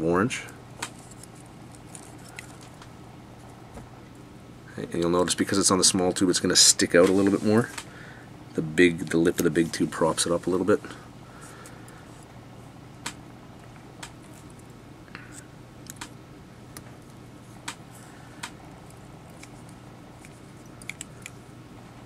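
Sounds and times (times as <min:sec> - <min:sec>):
steady low hum: 0:00.0 - 0:22.0
small sharp clicks and ticks: 0:15.8 - 0:17.8, 0:18.4 - 0:21.4.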